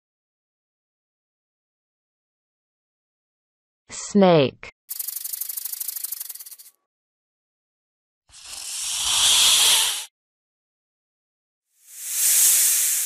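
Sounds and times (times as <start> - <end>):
snake hissing: 8.3 - 10.1, 11.8 - 13.0.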